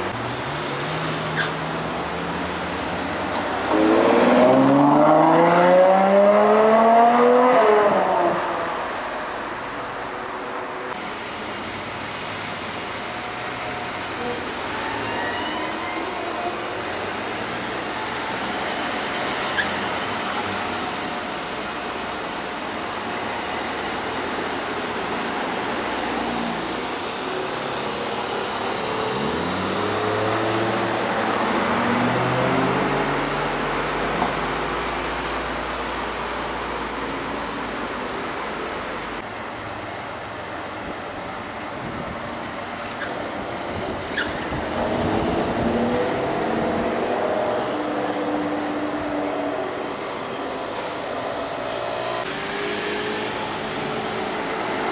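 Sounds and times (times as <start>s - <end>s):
car driving away: 0.0s - 9.0s, 25.5s - 39.2s, 43.9s - 54.9s
street traffic noise: 0.0s - 54.9s.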